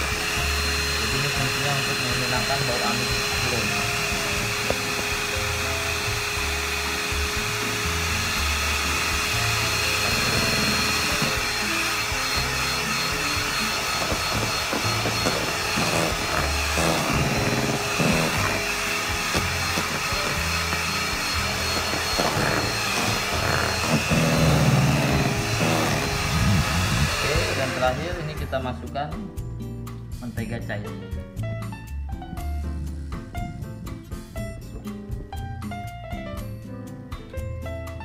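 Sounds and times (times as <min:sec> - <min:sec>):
electric hand mixer running: 0:00.0 - 0:28.8
background music: 0:00.0 - 0:38.0.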